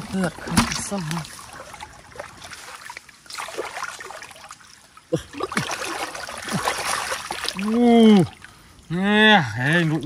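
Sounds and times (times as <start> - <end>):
hands sloshing in muddy water: 0.0 - 8.4
water splashing: 0.0 - 10.0.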